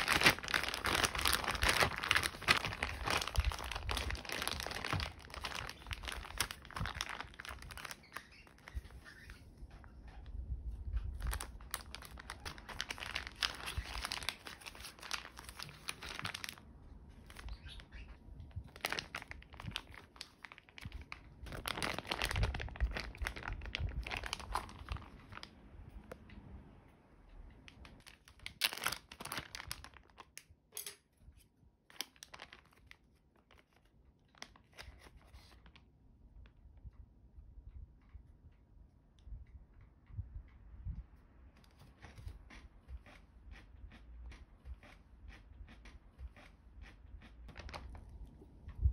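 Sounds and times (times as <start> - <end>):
plastic bag crinkling: 0.0 - 9.1, 11.0 - 25.6, 27.8 - 30.4, 31.9 - 35.8, 47.2 - 48.5.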